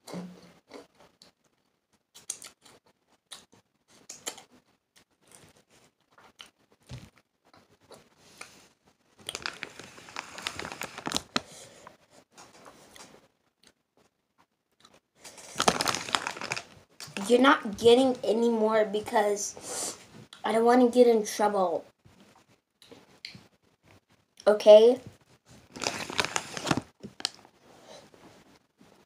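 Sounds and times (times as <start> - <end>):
crunchy chewing of chips: 2.1 - 6.6, 9.2 - 11.5, 14.8 - 16.8, 25.6 - 27.4
plastic chip bag crinkling: 9.2 - 11.6, 15.2 - 17.4, 25.6 - 27.5.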